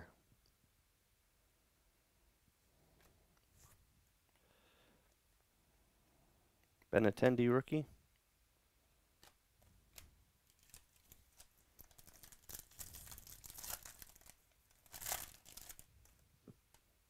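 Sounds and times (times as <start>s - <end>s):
foil wrapper tearing and crinkling: 10.5s - 15.9s.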